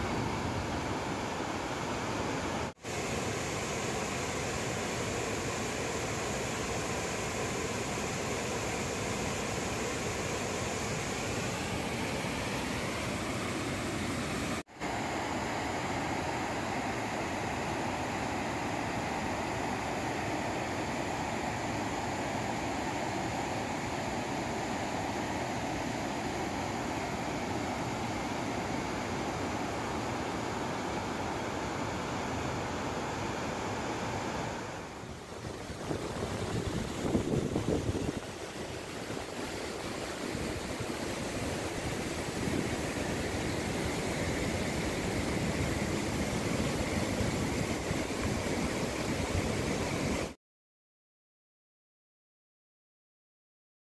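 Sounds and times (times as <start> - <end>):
water rushing down spillway: 0.0 - 50.4
wind blowing across microphone: 34.4 - 50.3.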